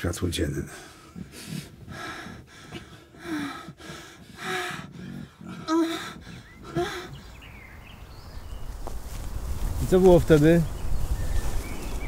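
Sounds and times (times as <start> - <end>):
person breathing hard: 0.6 - 7.5.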